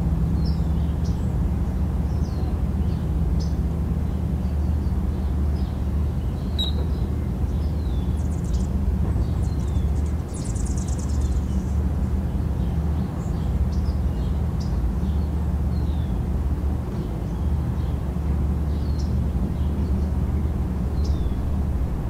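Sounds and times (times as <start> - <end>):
steady low rumble: 0.0 - 22.0
birds chirping: 0.1 - 22.0.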